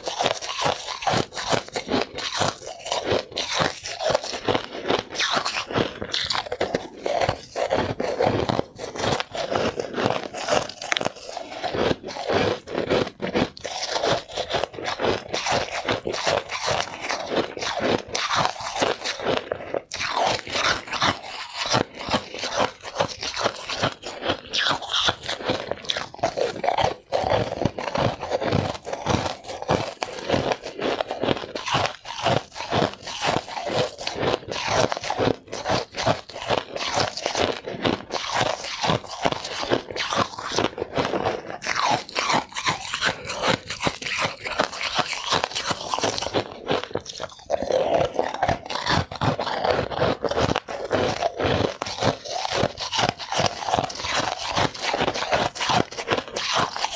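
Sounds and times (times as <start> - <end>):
person crunching ice: 0.0 - 56.9.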